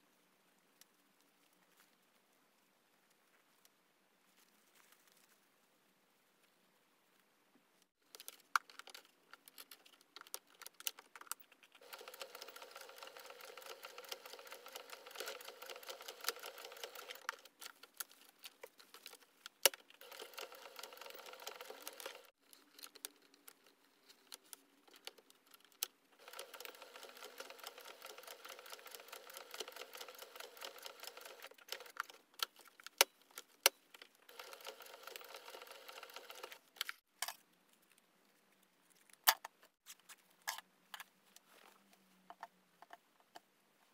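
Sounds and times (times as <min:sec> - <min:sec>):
electric sewing machine stitching: 0:11.8 - 0:17.3, 0:20.0 - 0:22.3, 0:26.2 - 0:32.0, 0:34.3 - 0:36.6.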